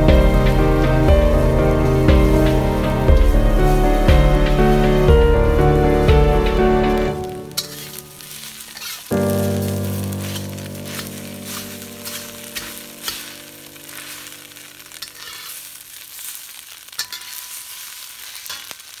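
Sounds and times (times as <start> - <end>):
eggs sizzling in a pan: 0.0 - 19.0
spatula scraping and tapping: 7.6 - 9.2, 17.0 - 18.7.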